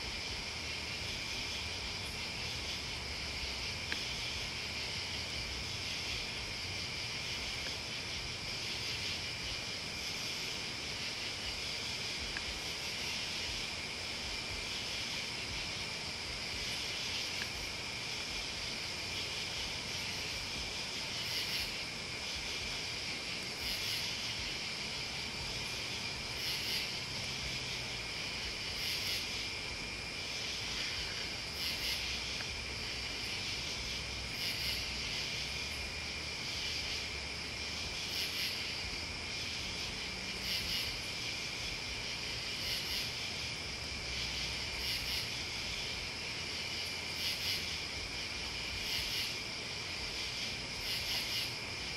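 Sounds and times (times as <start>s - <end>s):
crickets trilling: 0.0s - 51.9s
pulsing insect calls: 0.0s - 51.9s.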